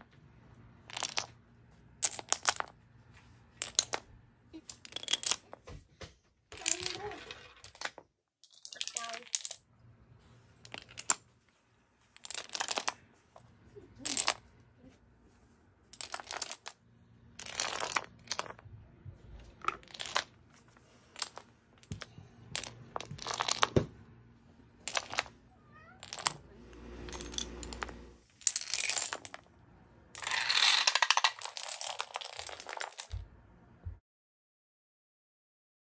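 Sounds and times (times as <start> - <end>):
dominoes clattering: 0.8 - 1.4, 2.0 - 2.8, 3.6 - 4.0, 4.6 - 5.5, 6.5 - 9.6, 10.6 - 11.3, 12.1 - 13.0, 14.0 - 14.5, 15.9 - 16.8, 17.4 - 18.6, 19.6 - 23.9, 24.8 - 25.4, 26.0 - 29.5, 30.1 - 33.2.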